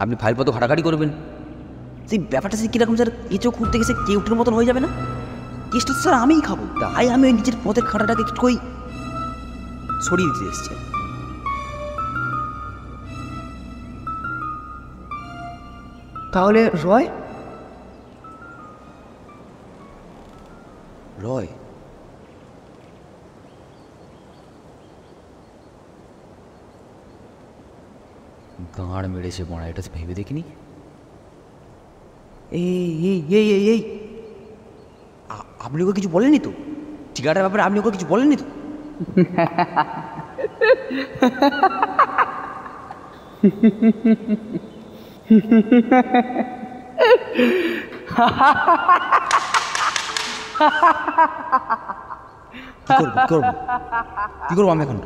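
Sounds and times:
outdoor background hiss: 0.0s - 55.0s
person making wordless vocal sounds: 52.6s - 53.8s.

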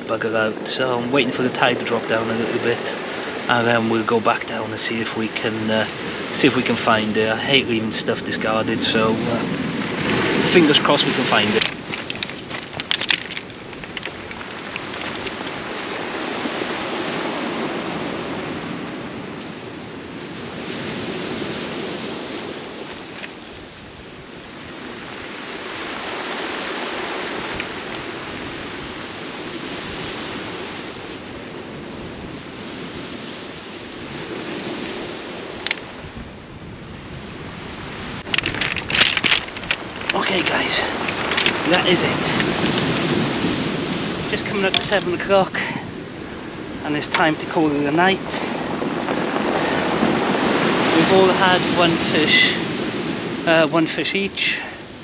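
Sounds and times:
waves breaking on shingle: 8.8s - 18.7s, 20.4s - 31.0s, 34.1s - 36.4s, 37.2s - 54.0s.

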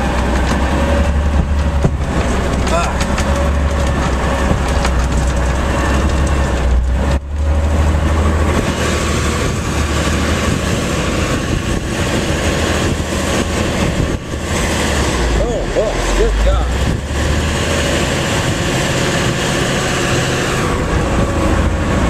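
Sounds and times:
tires pushing through snow: 0.0s - 22.0s
truck diesel engine rumbling: 0.0s - 22.0s.

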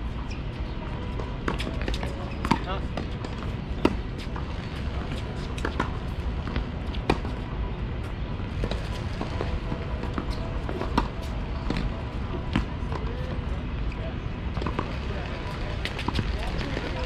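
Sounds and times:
steady low rumble: 2.8s - 17.0s.

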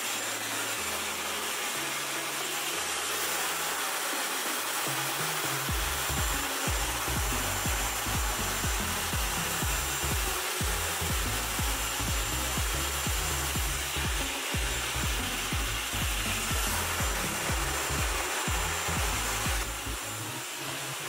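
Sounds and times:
hair dryer blowing: 0.0s - 21.0s
background music with low beat: 4.7s - 20.9s.

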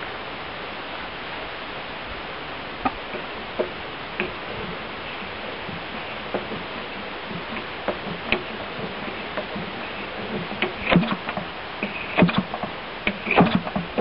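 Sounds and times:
model engine turned by hand knocking: 3.1s - 14.0s.

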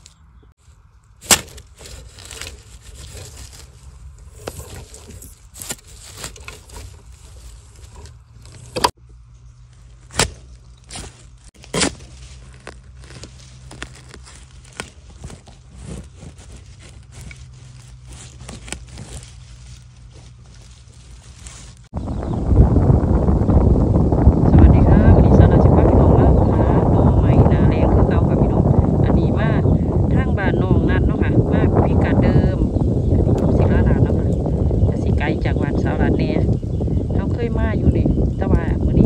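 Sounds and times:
leaf litter crackling and rustling: 0.0s - 9.0s, 9.7s - 21.9s
low steady rumble: 0.0s - 39.0s
twigs snapping: 1.0s - 9.0s, 9.7s - 21.9s.

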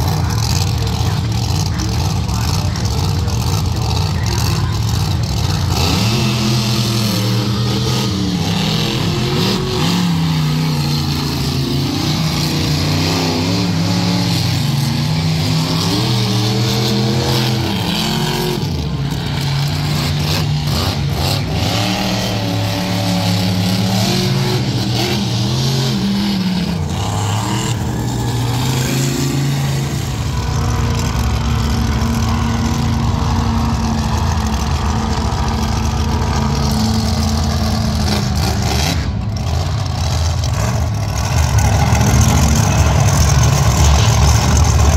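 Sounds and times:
monster truck engines revving: 0.0s - 44.9s.

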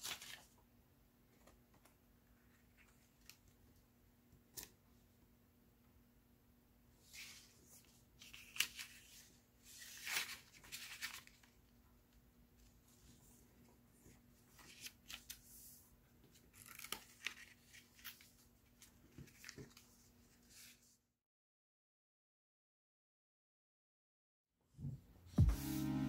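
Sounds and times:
paper rustling and crinkling: 0.0s - 0.6s, 7.1s - 11.7s, 14.0s - 20.9s.

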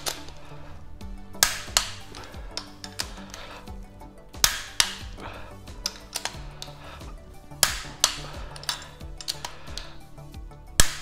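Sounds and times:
background music: 0.0s - 11.0s
torque wrench clicking: 1.4s - 3.8s, 4.4s - 10.0s.

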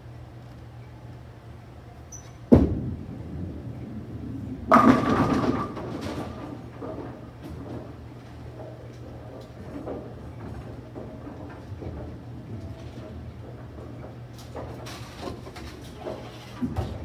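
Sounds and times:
bowling ball thud on lane: 2.5s - 3.0s, 4.7s - 6.6s
bowling pins crashing: 2.5s - 8.0s
bowling ball rolling rumble: 2.5s - 17.0s.

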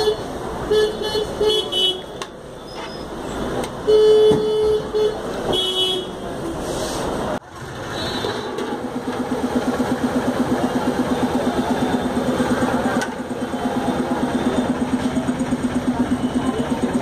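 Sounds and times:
vehicle horns honking: 0.0s - 6.6s, 7.8s - 8.7s
street traffic: 0.0s - 17.0s.

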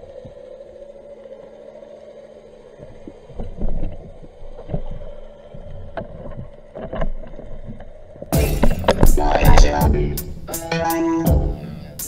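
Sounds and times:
steady low hum: 0.0s - 12.0s
dull underwater thumps: 5.6s - 10.4s.

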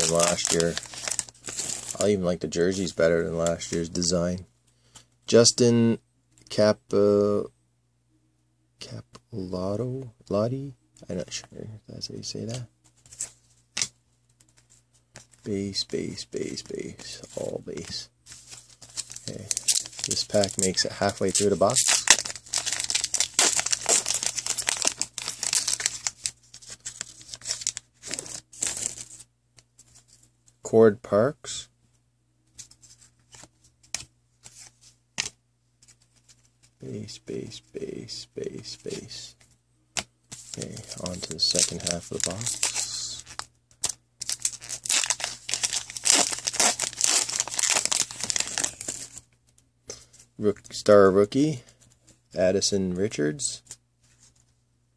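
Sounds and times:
foil wrapper tearing and crinkling: 0.0s - 2.0s, 18.9s - 29.2s, 40.5s - 49.2s.

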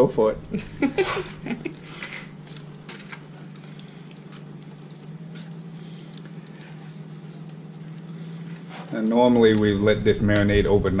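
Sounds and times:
steady low hum: 0.0s - 11.0s
wet squelches of meat in marinade: 1.8s - 9.8s.

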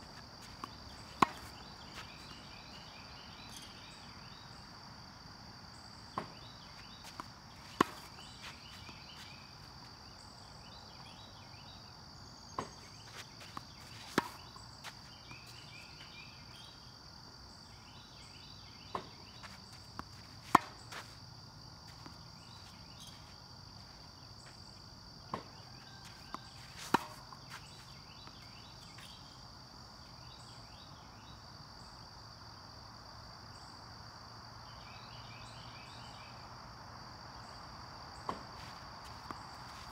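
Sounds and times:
crickets and insects chirping: 0.0s - 39.9s
tennis ball bouncing: 0.2s - 2.5s, 6.1s - 10.0s, 12.6s - 15.6s, 18.9s - 21.2s, 25.3s - 25.5s, 26.1s - 27.6s, 38.2s - 39.9s
tennis racket striking ball: 0.6s - 1.6s, 7.2s - 8.3s.

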